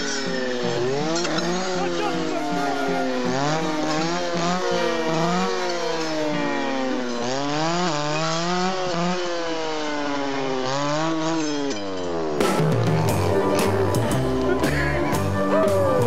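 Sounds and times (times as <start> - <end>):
brush saw revving: 0.0 - 16.0.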